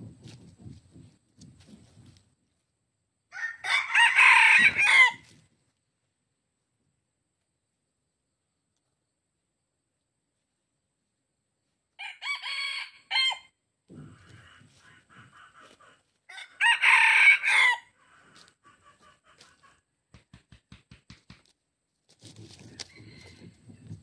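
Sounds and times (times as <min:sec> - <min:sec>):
roosters crowing: 0:03.3 - 0:05.4, 0:12.0 - 0:19.8, 0:22.5 - 0:24.0.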